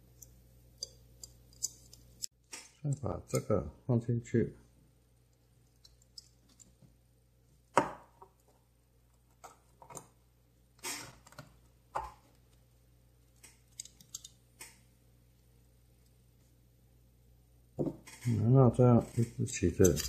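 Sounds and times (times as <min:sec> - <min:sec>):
small metal clicks and taps: 0:00.2 - 0:02.3.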